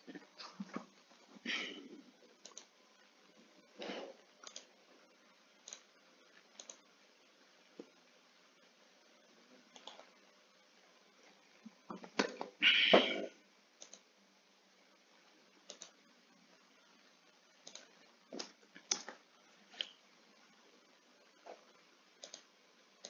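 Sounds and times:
keyboard typing: 2.4 - 2.7, 4.4 - 4.8, 5.6 - 6.9, 9.7 - 10.1, 13.8 - 14.1, 15.6 - 16.0, 17.6 - 19.2, 22.2 - 22.5
mouse clicks: 6.6 - 6.8, 13.8 - 14.0, 15.7 - 15.9, 22.2 - 22.5.

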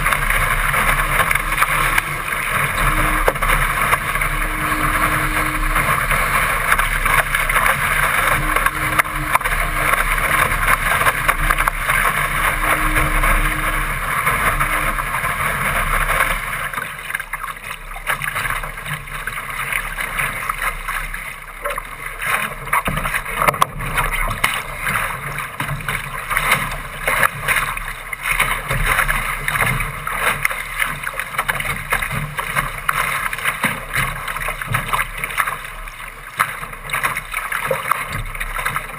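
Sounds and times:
wind on microphone: 0.0 - 16.9
water rushing along a boat hull: 0.0 - 38.9.

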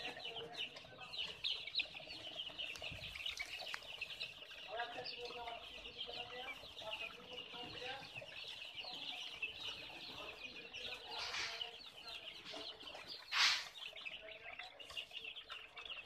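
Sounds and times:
chicks peeping: 0.0 - 16.0
rustling noise: 11.1 - 11.7, 13.3 - 13.8.

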